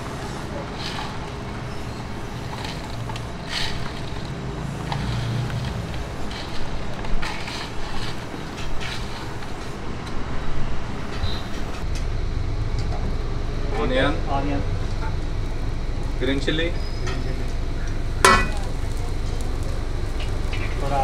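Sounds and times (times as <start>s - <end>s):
utensils and trays clinking: 18.2s - 18.8s.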